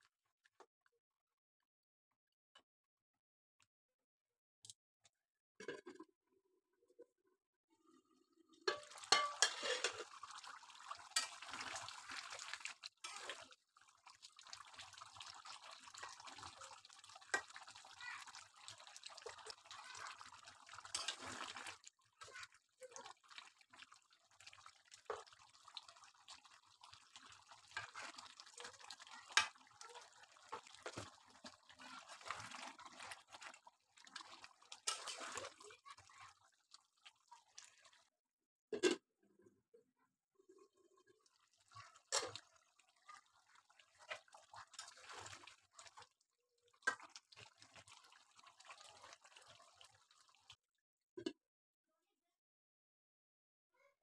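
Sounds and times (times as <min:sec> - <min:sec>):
curry simmering with small pops: 0:08.5 - 0:38.2, 0:40.4 - 0:51.4
spatula scraping pan: 0:08.7 - 0:10.1, 0:34.8 - 0:35.6.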